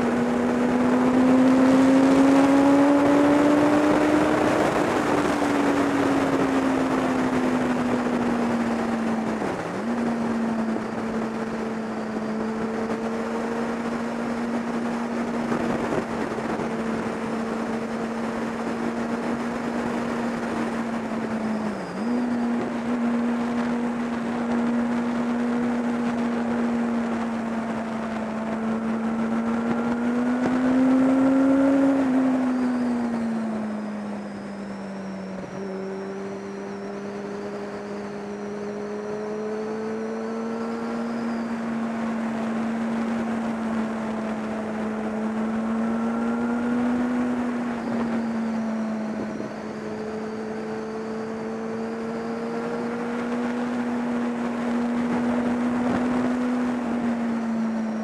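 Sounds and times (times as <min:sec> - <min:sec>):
motorcycle engine cruising: 0:00.0 - 0:58.0.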